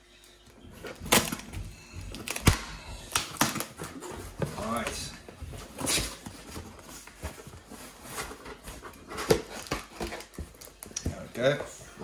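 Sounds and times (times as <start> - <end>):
cardboard scraping and rustling: 3.6 - 10.8.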